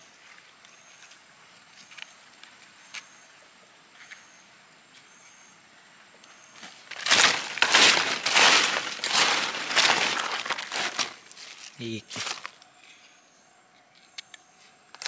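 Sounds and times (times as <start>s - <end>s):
dry leaves rustling and crunching: 6.7s - 12.6s.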